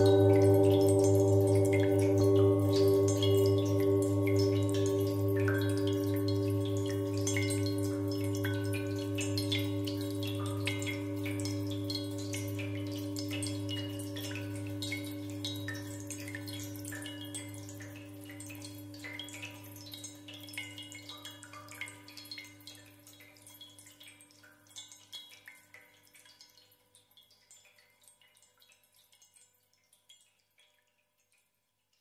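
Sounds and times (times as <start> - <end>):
low sustained drone: 0.0 - 13.5
water-drop plinks: 0.0 - 31.4.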